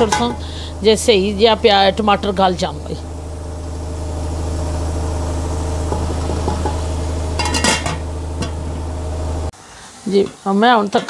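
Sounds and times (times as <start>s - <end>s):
low mechanical hum: 0.0s - 11.0s
metal pot lid clatter: 7.4s - 8.6s.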